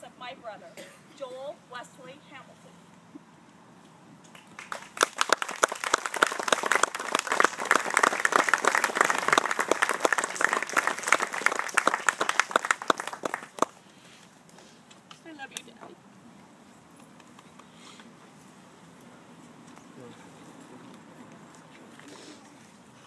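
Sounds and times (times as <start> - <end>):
small crowd applauding: 4.2 - 13.8.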